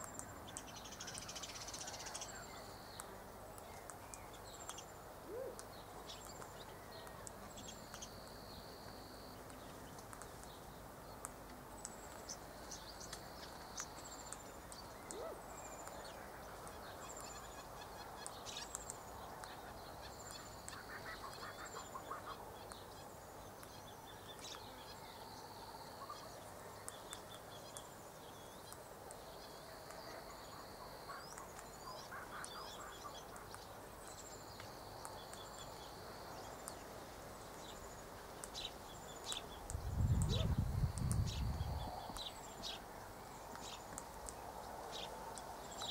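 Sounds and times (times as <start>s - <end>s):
soft clicks: 9.4s - 10.6s.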